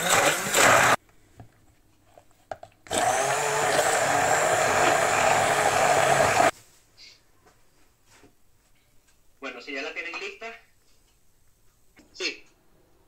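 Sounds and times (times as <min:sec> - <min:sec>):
hand blender whirring: 0:00.0 - 0:01.0, 0:02.9 - 0:06.5.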